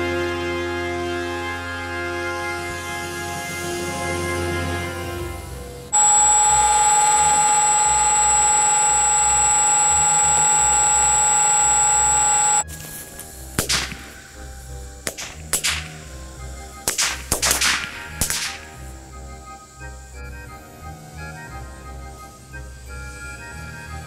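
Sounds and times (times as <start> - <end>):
electric motors whining: 6.0 - 12.6
thin high tone: 6.0 - 12.6
sharp cracks from toy gun: 13.6 - 14.3, 15.0 - 16.0, 16.8 - 18.8.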